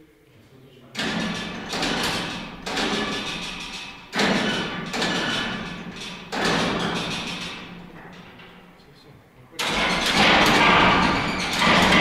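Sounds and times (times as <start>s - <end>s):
heavy bangs echoing: 9.6s - 12.0s.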